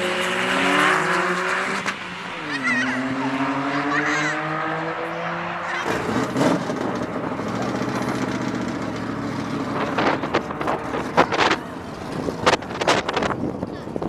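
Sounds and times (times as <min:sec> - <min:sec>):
race cars accelerating: 0:00.0 - 0:14.0
steady rushing noise: 0:09.7 - 0:14.0.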